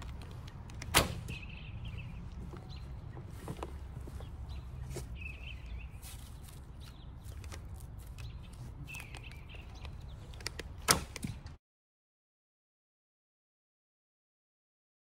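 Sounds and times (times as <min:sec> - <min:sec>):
small birds chirping: 0:00.0 - 0:11.5
low outdoor rumble: 0:00.0 - 0:11.6
arrow nocking clicks: 0:10.3 - 0:11.5.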